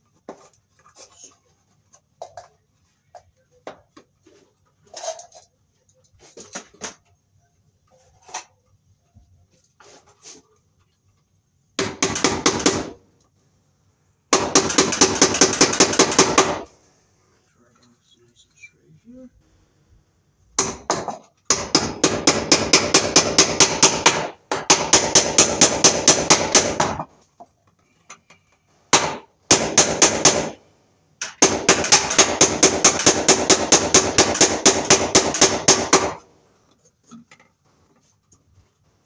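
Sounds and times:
hammer driving nails: 11.8s - 13.0s, 14.3s - 16.7s, 20.6s - 27.2s, 28.9s - 30.6s, 31.2s - 36.3s.

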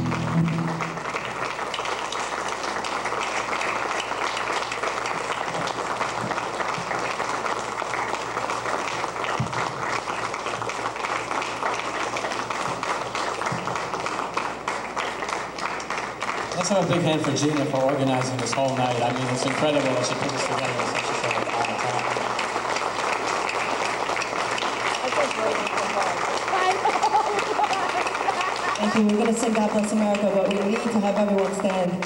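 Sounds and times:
band playing last chord: 0.0s - 1.5s
audience applauding: 0.0s - 32.0s.

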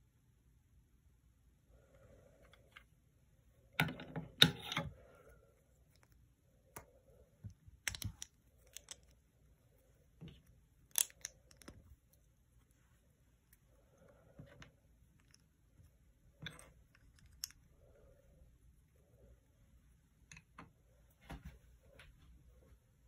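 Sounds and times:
plastic toy bricks clicking: 7.8s - 9.2s, 10.8s - 11.8s.

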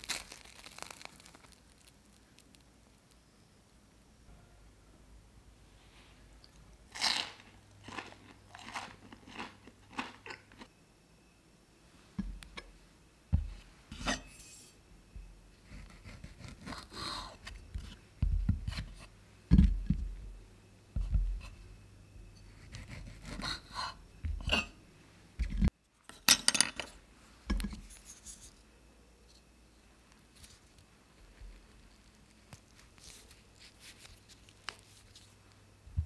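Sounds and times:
knife blade scraping and clinking: 13.9s - 14.8s, 23.6s - 24.8s.

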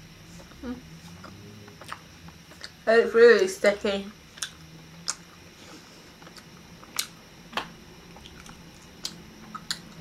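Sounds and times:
person chewing sticky sweet: 0.2s - 2.8s, 4.2s - 7.3s, 8.0s - 10.0s.

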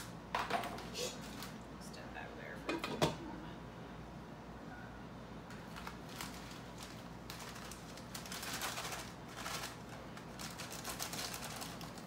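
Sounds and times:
packaging rustling and crackling: 5.5s - 12.0s.

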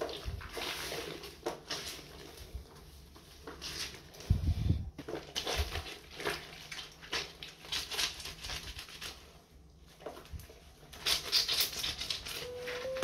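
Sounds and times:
wet fabric sloshing and squelching: 0.0s - 4.4s, 5.0s - 9.2s.

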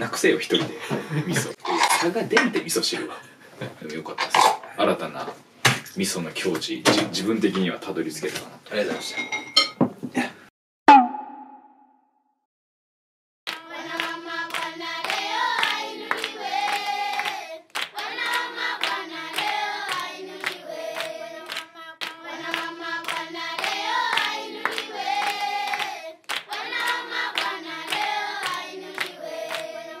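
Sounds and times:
song with handclap beat: 13.5s - 29.9s.

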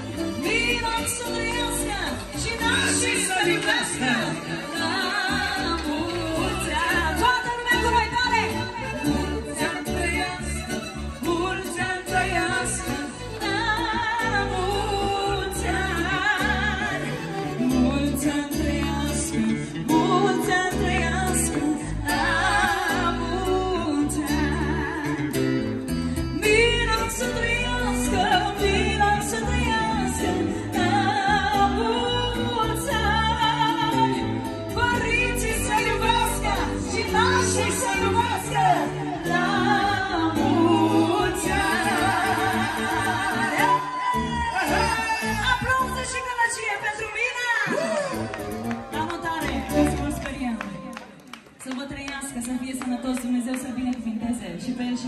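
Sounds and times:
live band playing: 0.0s - 53.7s
person singing: 35.0s - 45.9s.

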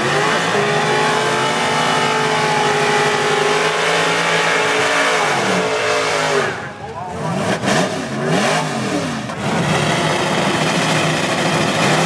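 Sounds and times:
racing car engine at high revs: 0.0s - 12.0s.

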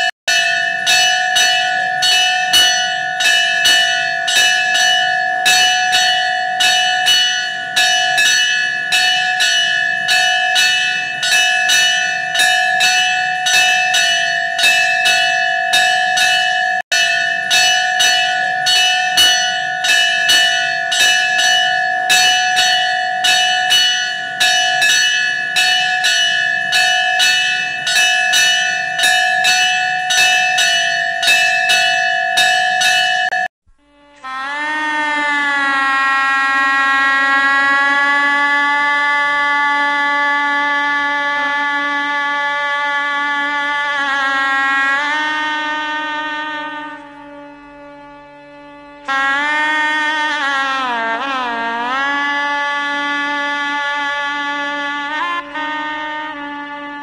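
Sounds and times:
temple bell struck rapidly: 0.0s - 33.5s.

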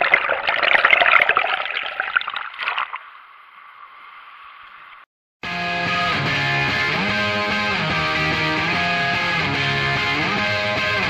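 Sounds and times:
underwater churning water: 0.0s - 5.0s.

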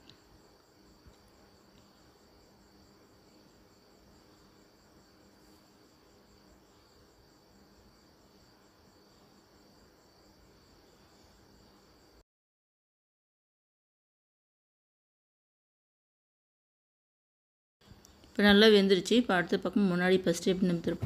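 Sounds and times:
high-pitched insect trill: 0.0s - 12.2s.

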